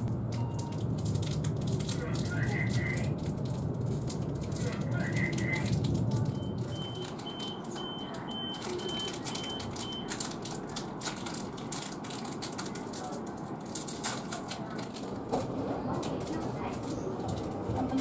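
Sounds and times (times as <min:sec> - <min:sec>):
distant voices: 0:00.8 - 0:18.0
echoing station ambience: 0:01.6 - 0:03.3, 0:04.2 - 0:11.0, 0:14.2 - 0:18.0.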